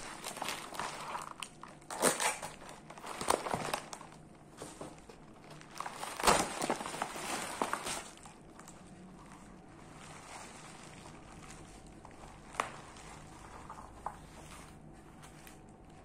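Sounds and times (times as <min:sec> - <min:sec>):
knife cutting packing: 0:00.0 - 0:04.1, 0:05.7 - 0:08.3
paper packing tearing: 0:00.0 - 0:04.1, 0:05.6 - 0:08.3.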